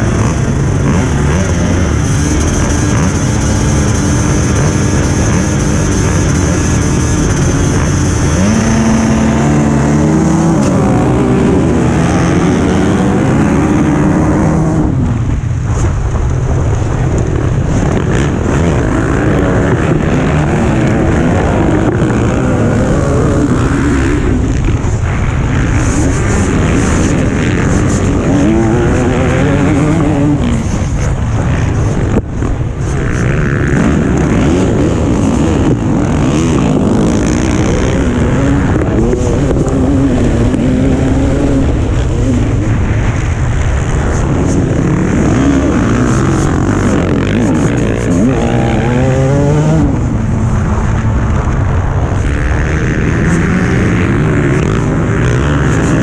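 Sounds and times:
motorcycle engines revving: 0.0s - 56.0s.

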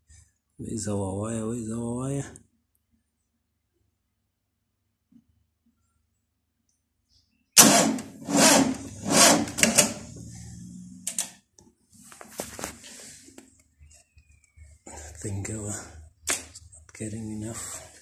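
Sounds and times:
starter motor cranking engine: 7.6s - 10.4s
clicks: 11.0s - 11.7s.

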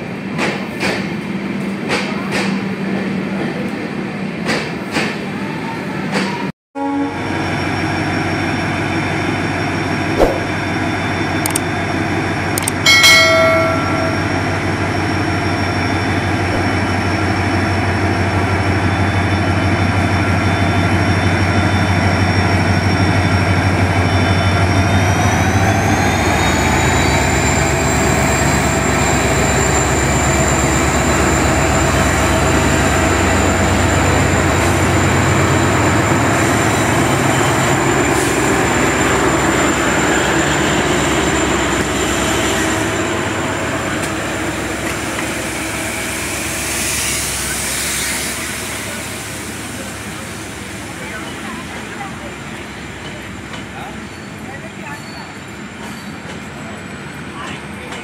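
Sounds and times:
diesel locomotive engine throbbing: 7.0s - 58.0s
short high tone: 12.9s - 14.7s.

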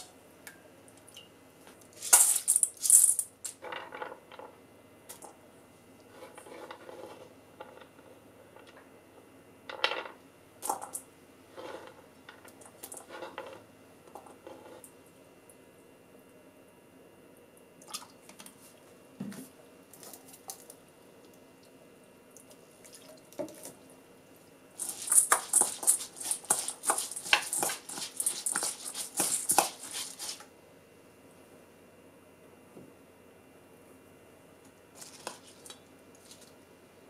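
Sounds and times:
spoon scraping in metal bowl: 24.8s - 30.4s.

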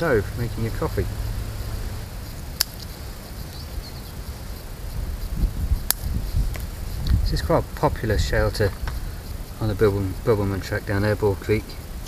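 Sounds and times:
low rumble: 0.0s - 4.0s
wood fire crackling: 0.0s - 12.0s
sharp pops: 2.0s - 3.0s, 5.8s - 7.2s.

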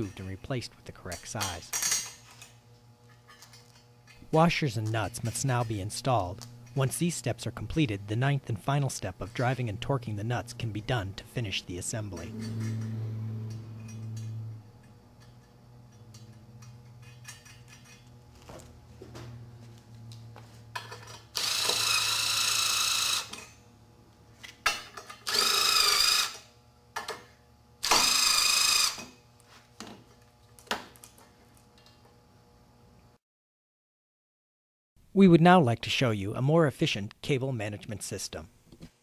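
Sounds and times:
nut driver motor whine: 2.6s - 24.2s, 25.0s - 27.0s, 27.8s - 29.2s.

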